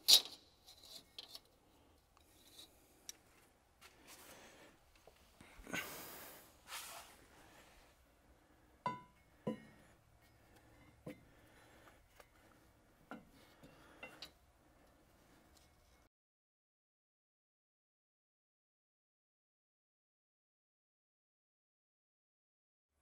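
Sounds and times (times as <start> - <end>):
steel parts clinking: 0.0 - 1.5.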